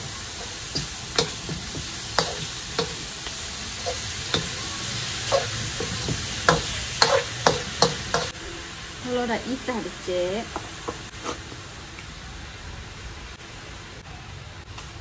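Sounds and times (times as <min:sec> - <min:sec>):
food sizzling: 0:00.0 - 0:13.9
spoon scraping frying pan: 0:00.4 - 0:08.3.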